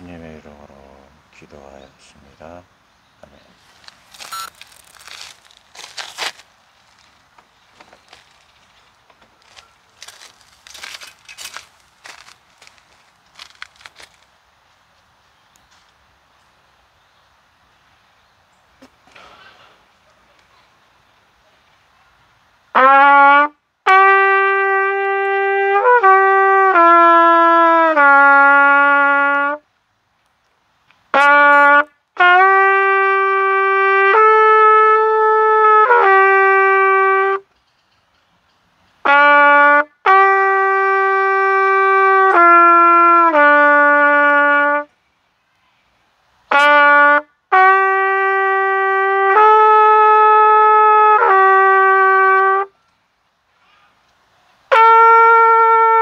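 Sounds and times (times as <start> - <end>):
solo trumpet melody: 3.6 - 7.1, 22.7 - 29.7, 31.1 - 37.5, 39.0 - 44.9, 46.5 - 52.8, 54.7 - 56.0.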